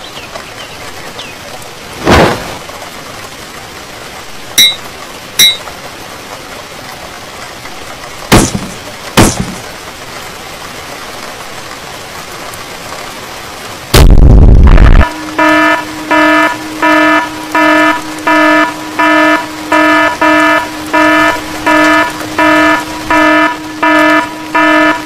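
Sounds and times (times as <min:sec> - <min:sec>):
fight impact hits: 0:08.3 - 0:09.7, 0:14.0 - 0:15.0.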